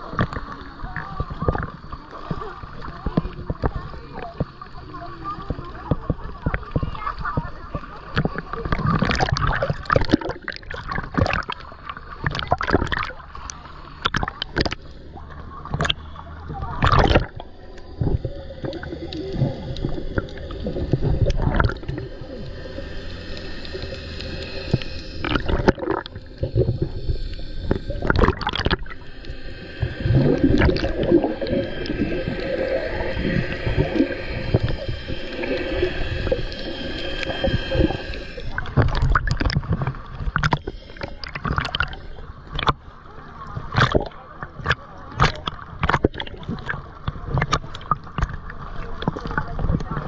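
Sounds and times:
boat motors humming underwater: 0.0s - 50.0s
choppy water splashing: 0.0s - 50.0s
underwater gurgling and bubbling: 0.0s - 50.0s.

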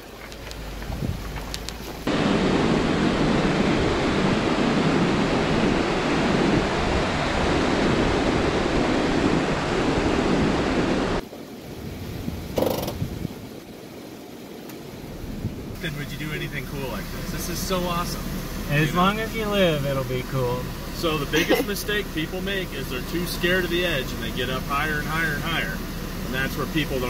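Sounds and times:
wind buffeting microphone: 0.0s - 13.8s, 15.0s - 15.8s.

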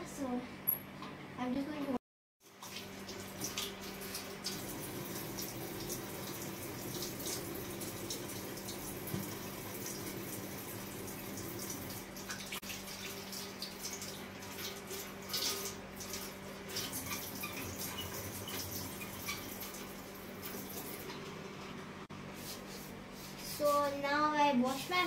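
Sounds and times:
hand washing splashes and drips: 2.4s - 21.1s
tap water running into sink: 2.4s - 21.2s.

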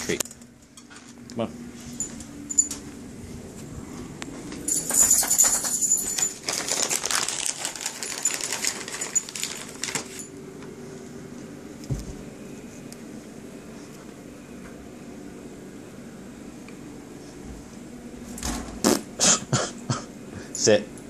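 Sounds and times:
treat bag jingling and rustling: 4.6s - 10.3s.

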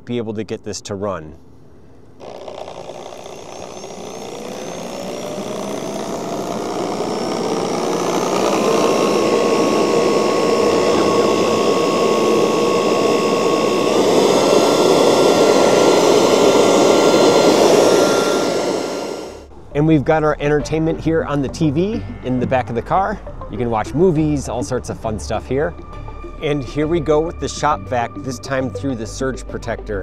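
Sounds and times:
electric leaf blower whine: 2.2s - 19.7s.

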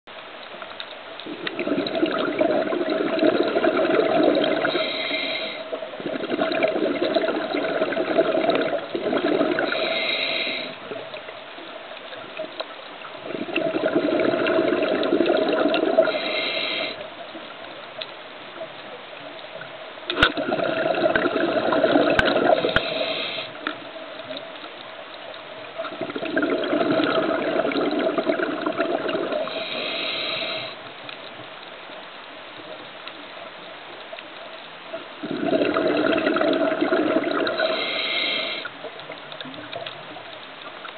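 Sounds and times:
exhaled bubbles gurgling underwater: 1.1s - 18.0s, 18.6s - 31.4s, 32.5s - 40.9s
diver inhaling through regulator: 4.4s - 5.8s, 9.3s - 10.9s, 15.9s - 17.0s, 22.1s - 23.7s, 29.3s - 30.8s, 37.4s - 38.8s.

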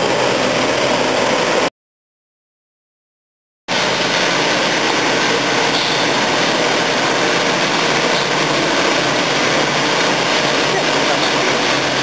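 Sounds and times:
machine engine running: 0.0s - 1.7s, 3.7s - 12.0s
strong hiss: 3.7s - 12.0s.

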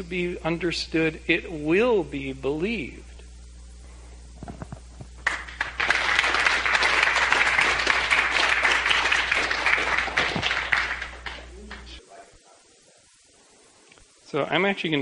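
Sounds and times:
audience clapping: 4.6s - 12.0s.

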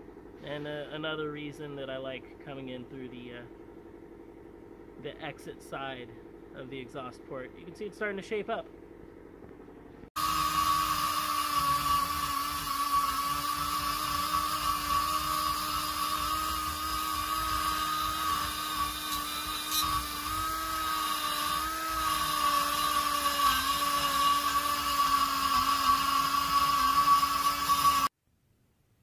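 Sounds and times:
grinder whining cutting metal: 10.2s - 28.1s.

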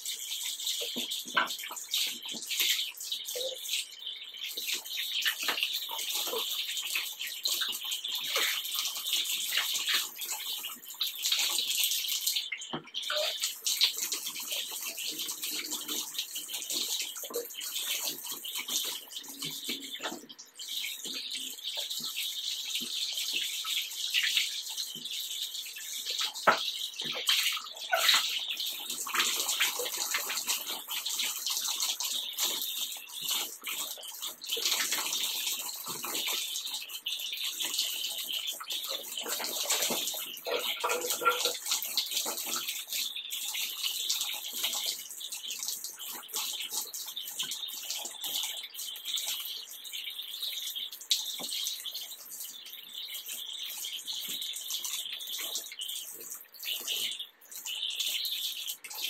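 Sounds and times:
bath tap running: 0.0s - 52.4s
water splashing: 25.8s - 49.5s.

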